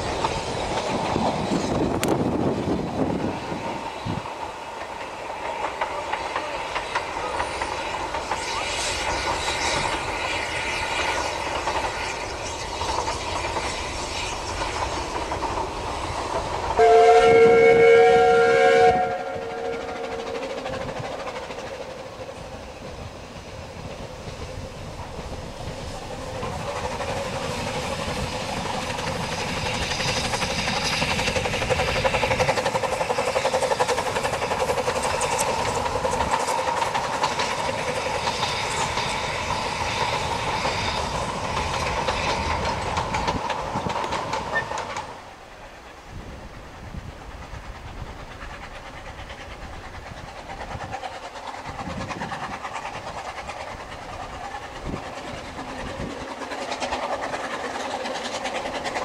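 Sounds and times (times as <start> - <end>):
train wheels clattering: 0.0 - 59.0
steam whistle two-note blast: 16.8 - 20.2.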